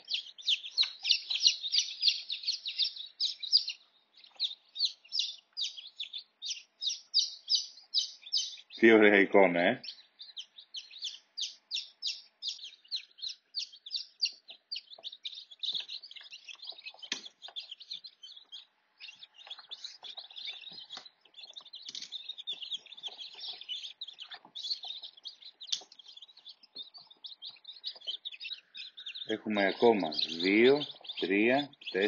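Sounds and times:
chicks peeping: 0:00.0 - 0:32.0.

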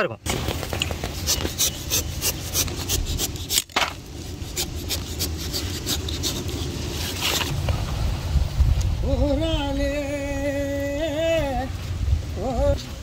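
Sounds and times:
knife scraping gourd skin: 0:00.8 - 0:07.5
low steady rumble: 0:04.0 - 0:13.0.

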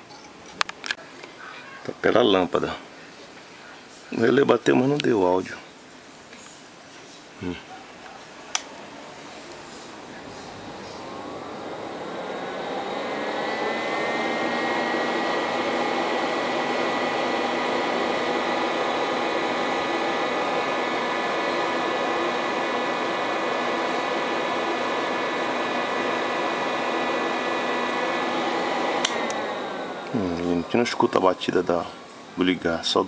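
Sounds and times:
fan air rushing: 0:08.5 - 0:33.0
fan motor whining: 0:08.5 - 0:33.0.

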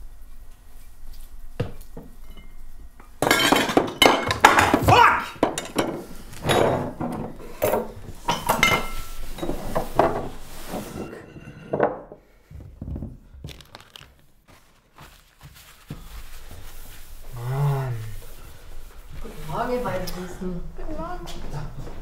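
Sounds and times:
paper towel rustling: 0:08.0 - 0:11.3, 0:13.4 - 0:22.0.

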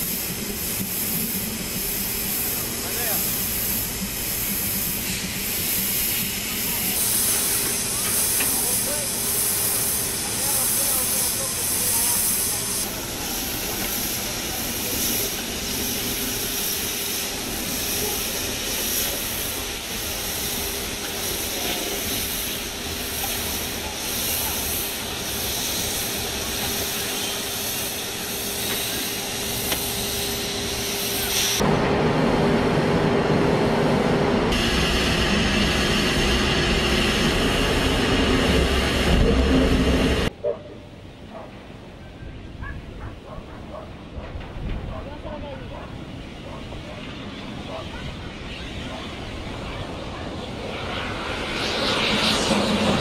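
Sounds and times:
steam locomotive working: 0:00.0 - 0:40.4, 0:41.0 - 0:53.0.

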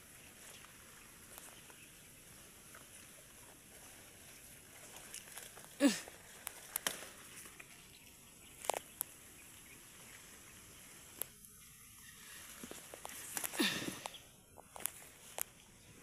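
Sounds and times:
leaves and stalks rustling: 0:00.0 - 0:16.0.

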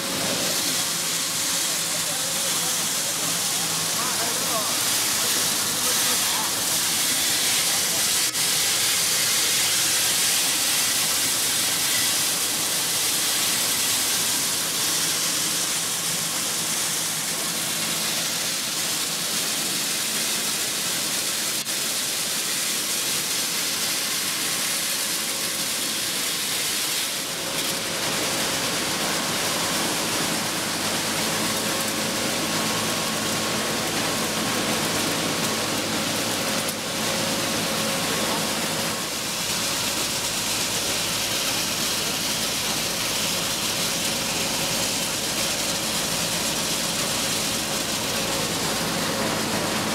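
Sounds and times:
grain cleaning machine rushing hiss: 0:00.0 - 0:49.9.

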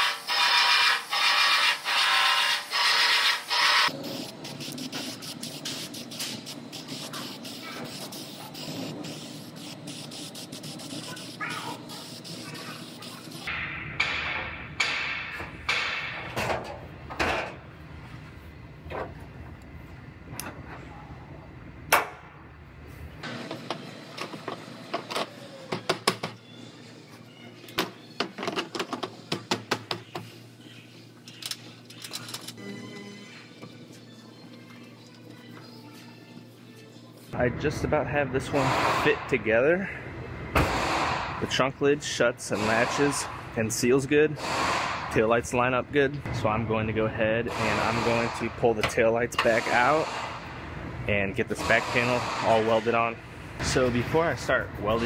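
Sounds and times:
aerosol can spraying in hissing bursts: 0:00.0 - 0:13.5.

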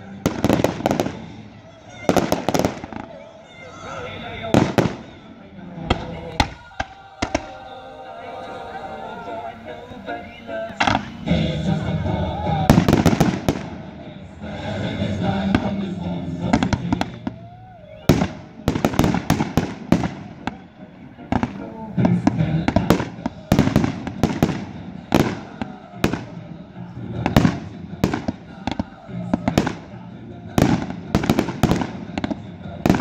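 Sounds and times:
fireworks bangs and crackles: 0:00.0 - 0:03.6, 0:04.2 - 0:07.7, 0:10.7 - 0:33.0.

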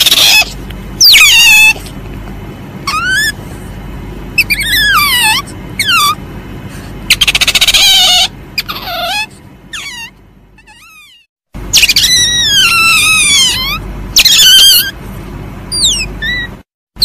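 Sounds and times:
civet squealing calls: 0:00.0 - 0:01.9, 0:02.8 - 0:03.4, 0:04.4 - 0:06.2, 0:07.1 - 0:15.0, 0:15.7 - 0:16.6.

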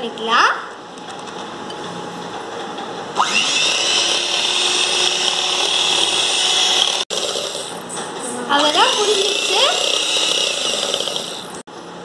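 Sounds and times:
electric hand mixer whining: 0:03.2 - 0:07.9, 0:08.6 - 0:11.6.

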